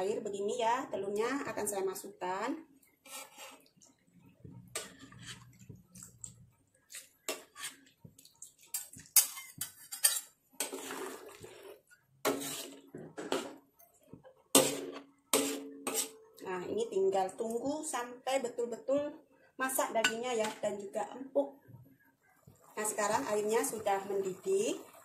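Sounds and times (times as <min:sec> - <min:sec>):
spatula scraping: 0:03.0 - 0:03.8, 0:04.5 - 0:16.4.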